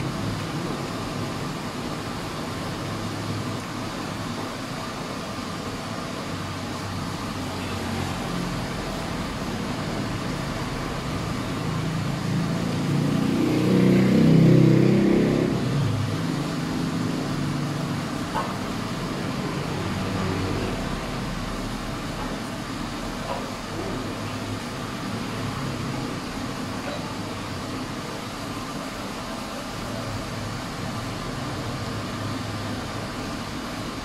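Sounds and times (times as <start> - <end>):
road traffic noise: 0.0 - 34.0
vehicle passing by: 11.0 - 18.0, 19.1 - 21.4.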